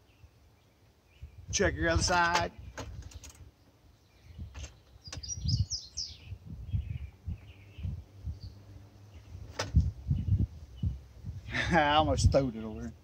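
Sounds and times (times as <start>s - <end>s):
small birds chirping: 0.0s - 11.6s.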